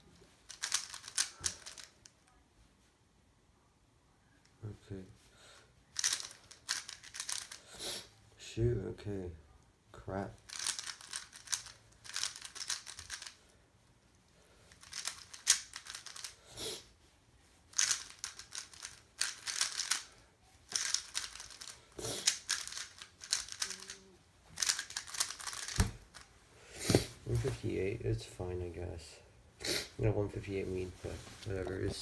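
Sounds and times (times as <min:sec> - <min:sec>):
plastic cube clicking: 0:00.5 - 0:02.0, 0:06.0 - 0:07.6, 0:10.5 - 0:13.4, 0:14.8 - 0:16.4, 0:17.8 - 0:20.0, 0:20.7 - 0:24.0, 0:24.6 - 0:26.3.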